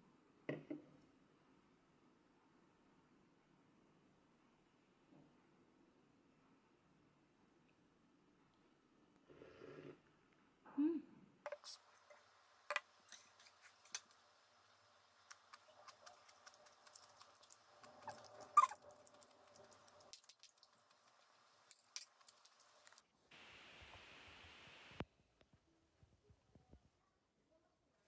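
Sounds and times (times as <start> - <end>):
steady hiss: 11.5 - 18.4, 19.1 - 25.0.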